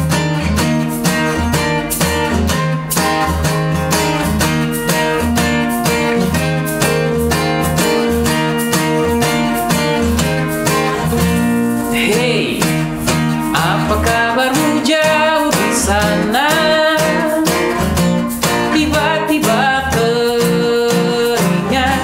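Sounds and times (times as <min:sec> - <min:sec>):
acoustic guitars strumming: 0:00.0 - 0:22.0
man singing: 0:11.8 - 0:17.8, 0:18.6 - 0:22.0.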